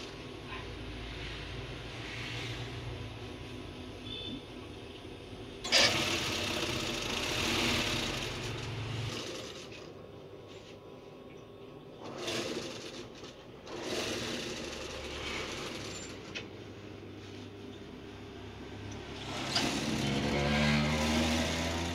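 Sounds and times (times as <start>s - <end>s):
sewing machine stitching: 5.6s - 9.9s, 12.0s - 16.4s, 19.1s - 21.9s.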